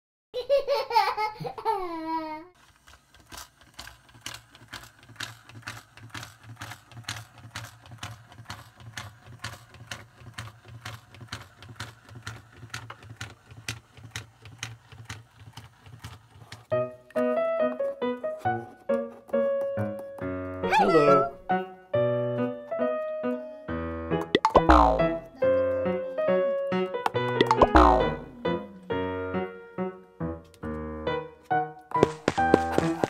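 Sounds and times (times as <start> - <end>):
high child-like laugh: 0.4 - 2.6.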